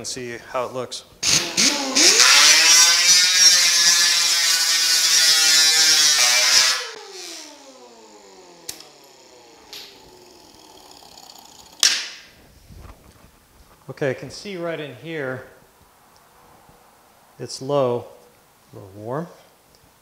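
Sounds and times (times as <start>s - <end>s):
air grinder sanding metal: 1.2s - 11.8s.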